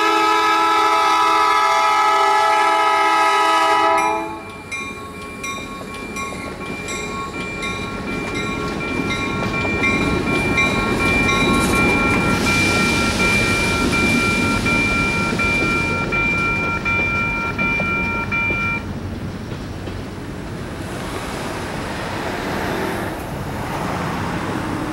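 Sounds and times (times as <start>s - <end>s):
locomotive and train rumble: 0.0s - 24.9s
electronic crossing bell ringing: 3.9s - 18.9s.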